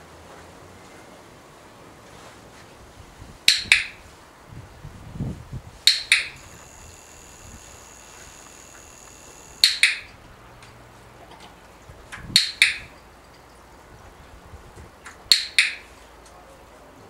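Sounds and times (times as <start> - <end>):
dog-training clicker clicks: 5.9 - 6.5.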